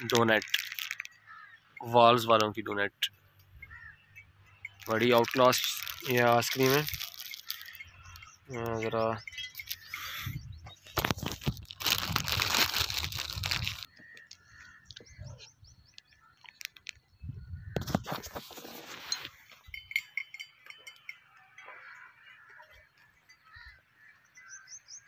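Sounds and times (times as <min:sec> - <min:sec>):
plastic wrapper rustling: 0:00.0 - 0:01.2, 0:04.8 - 0:07.9, 0:09.5 - 0:10.1, 0:10.9 - 0:14.3, 0:15.9 - 0:17.0
birds chirping faintly: 0:00.0 - 0:11.6, 0:13.8 - 0:17.8, 0:19.1 - 0:25.0.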